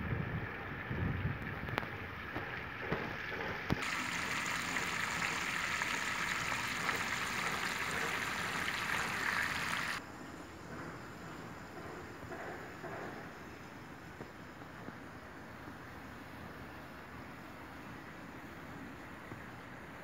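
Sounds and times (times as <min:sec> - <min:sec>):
hose water spraying on grass: 0:01.6 - 0:10.0.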